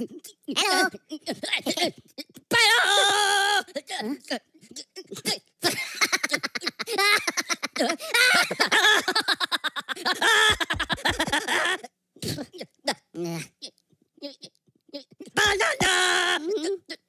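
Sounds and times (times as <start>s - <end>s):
high cartoon voices giggling: 4.8s - 11.9s.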